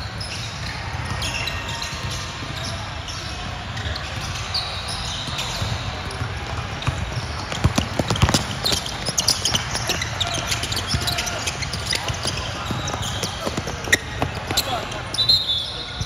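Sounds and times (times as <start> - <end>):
shoes squeaking on court: 0.0 - 16.0
basketball bouncing: 5.3 - 15.0.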